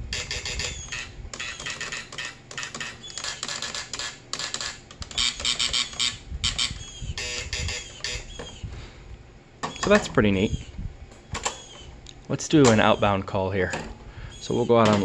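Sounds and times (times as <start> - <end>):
intercom buzzer: 0.0 - 8.4.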